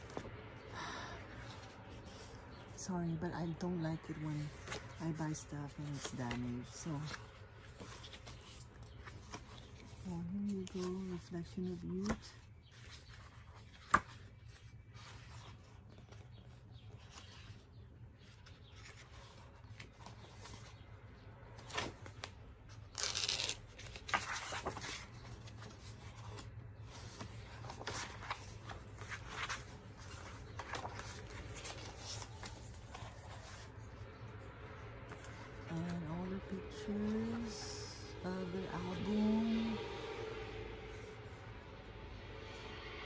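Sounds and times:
paper pages rustling: 0.0 - 0.6, 3.5 - 36.0
faint low hum: 0.0 - 43.0.

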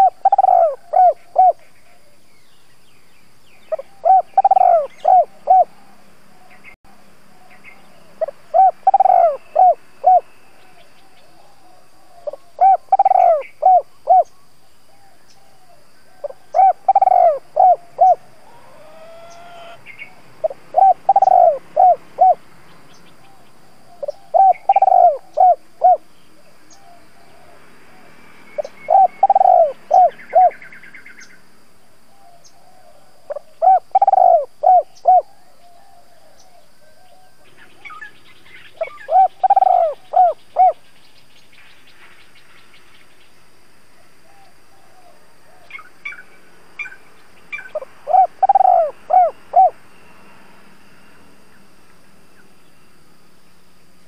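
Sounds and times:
dove cooing: 0.0 - 2.1, 3.7 - 6.7, 7.4 - 22.4, 23.2 - 26.1, 26.7 - 30.7, 32.1 - 38.1, 38.7 - 40.8, 44.0 - 49.8.

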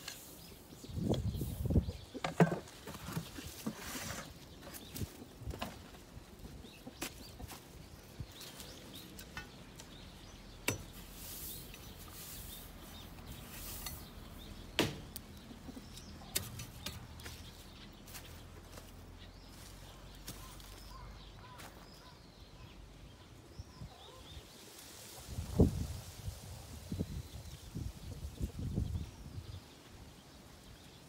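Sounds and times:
rice husks rustling under a hoe: 10.8 - 14.4.

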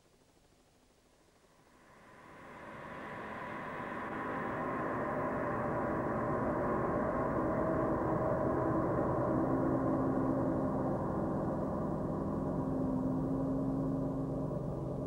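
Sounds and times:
gong-like drone: 2.4 - 15.0.

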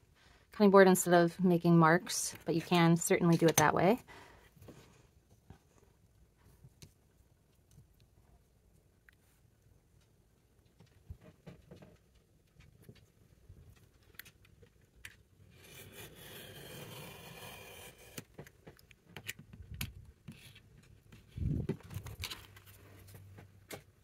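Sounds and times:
box cutter scraping cut: 15.6 - 18.2.

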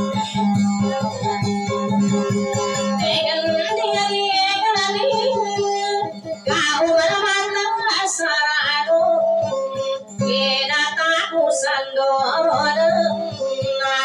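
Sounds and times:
guitar accompaniment: 0.0 - 14.0
woman singing into microphone: 2.9 - 14.0.

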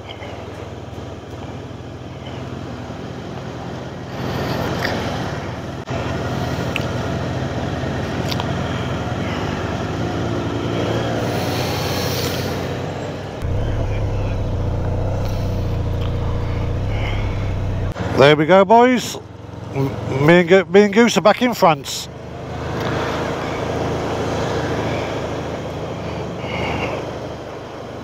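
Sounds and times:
motorcycle engine: 0.5 - 18.4.

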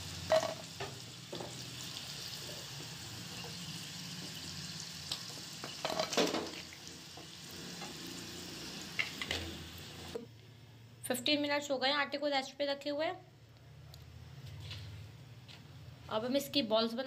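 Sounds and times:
chicken sizzling in hot oil: 0.0 - 10.2.

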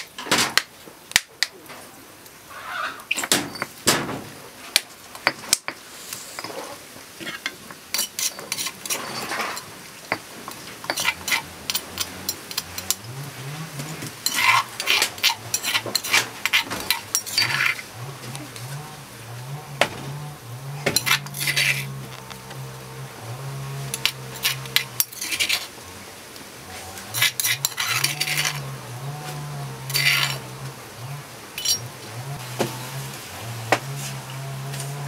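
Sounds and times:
metal spoon scraping stone: 6.2 - 13.1, 13.7 - 18.4, 20.8 - 22.6, 23.9 - 25.8, 27.0 - 28.7, 29.8 - 30.6, 31.6 - 31.9
stone pestle grinding in mortar: 7.3 - 18.4, 19.7 - 22.6, 23.7 - 25.7, 27.0 - 30.5, 31.6 - 32.5.

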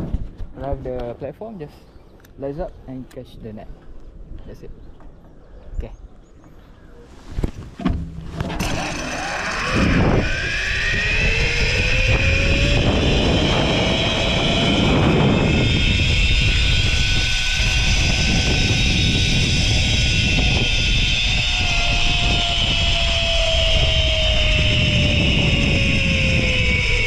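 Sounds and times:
rushing noise: 8.4 - 27.0
zip line pulleys whirring: 8.4 - 27.0.

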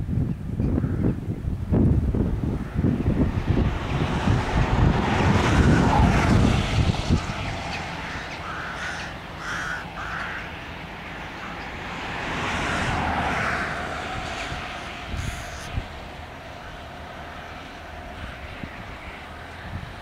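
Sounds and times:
wind buffeting microphone: 0.0 - 20.0
rook cawing: 0.8 - 1.2, 7.9 - 10.8, 12.5 - 14.0, 15.1 - 15.8.

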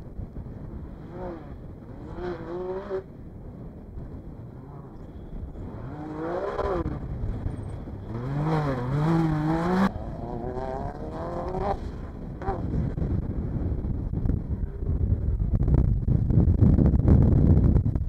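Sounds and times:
race car engines revving: 0.5 - 3.1, 4.0 - 13.2.

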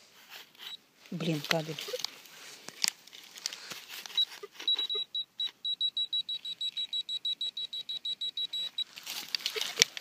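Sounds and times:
metal detector pinpointer beeping: 4.1 - 9.0.

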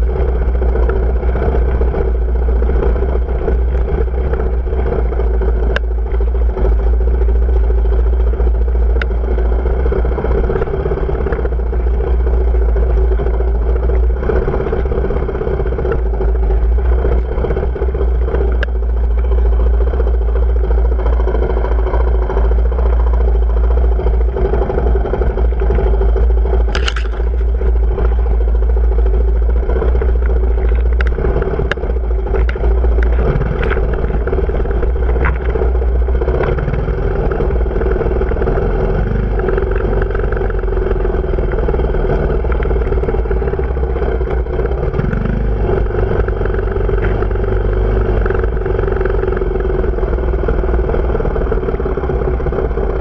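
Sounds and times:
heavy low rumble: 0.0 - 53.0
motorcycle engine running: 0.0 - 53.0
sharp clicks: 26.5 - 27.6.

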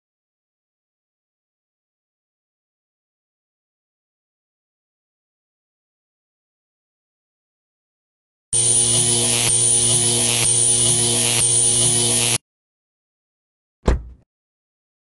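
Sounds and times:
crackling electrical buzz: 8.6 - 12.4
steady hum: 8.6 - 12.4
heavy thump: 13.8 - 14.2.

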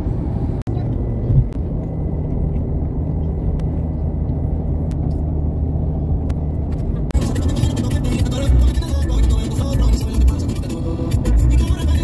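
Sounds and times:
car driving low rumble: 0.0 - 12.0.

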